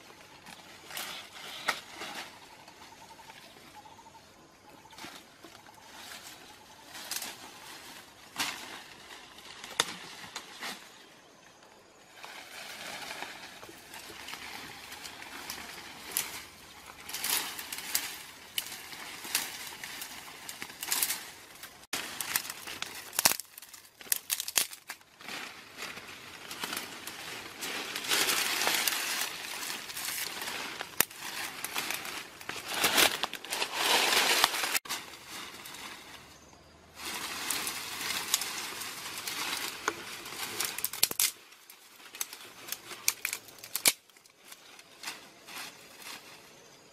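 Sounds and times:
leaves and twigs rustling and crackling: 0.0s - 46.9s.

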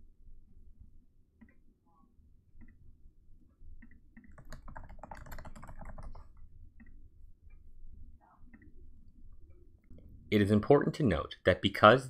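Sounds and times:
typing on computer keyboard: 3.8s - 6.9s.

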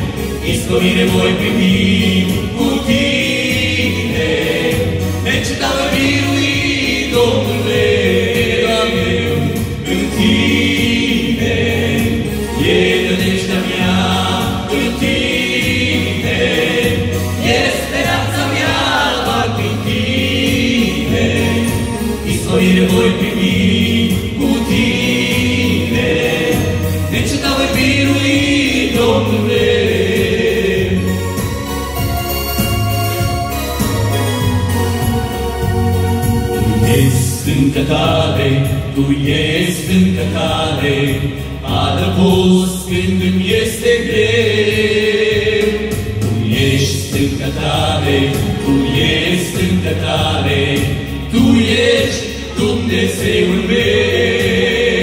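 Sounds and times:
electronic keyboard with bass beat: 0.0s - 43.4s
male group singing in harmony: 0.0s - 55.0s.

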